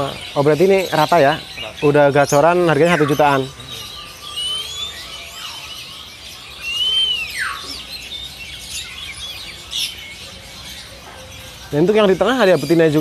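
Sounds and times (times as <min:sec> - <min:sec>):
songbirds chirping and whistling: 0:00.0 - 0:13.0
loud clear bird whistle: 0:02.8 - 0:10.0.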